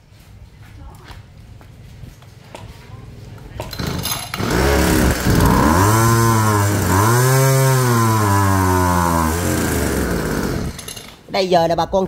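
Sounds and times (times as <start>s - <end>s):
brush cutter engine running: 3.7s - 11.1s.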